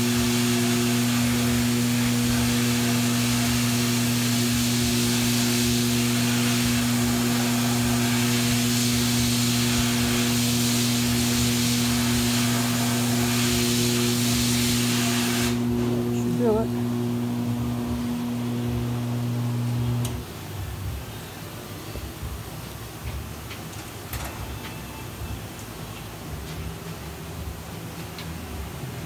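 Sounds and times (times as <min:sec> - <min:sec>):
abrasive blasting hiss: 0:00.0 - 0:16.7
low machinery hum: 0:00.0 - 0:29.0.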